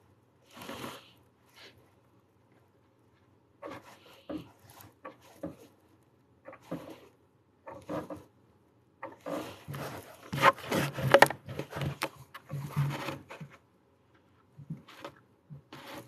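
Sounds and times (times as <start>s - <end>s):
tool scraping wooden tabletop: 3.6s - 5.7s, 6.5s - 7.1s, 7.7s - 8.3s, 9.0s - 13.6s, 14.7s - 16.0s.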